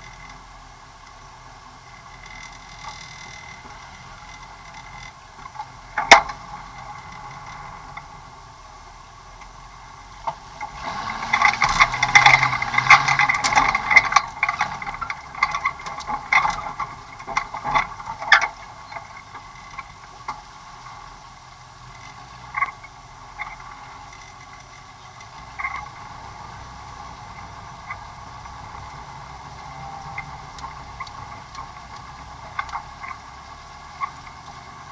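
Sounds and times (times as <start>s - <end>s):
vehicle body rattling: 0.0s - 8.4s, 9.4s - 34.9s
engine droning: 0.0s - 34.9s.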